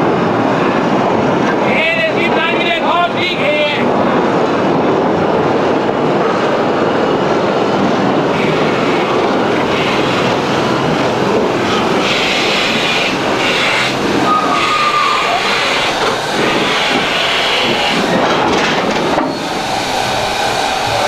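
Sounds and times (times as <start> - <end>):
steam locomotive rushing: 0.0 - 21.0
hissing bursts of steam: 11.6 - 18.2, 19.0 - 21.0.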